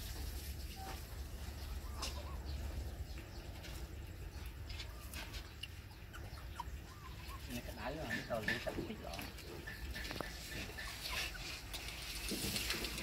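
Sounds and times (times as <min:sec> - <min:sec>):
puppies squeaking: 0:01.6 - 0:02.8, 0:04.7 - 0:12.2.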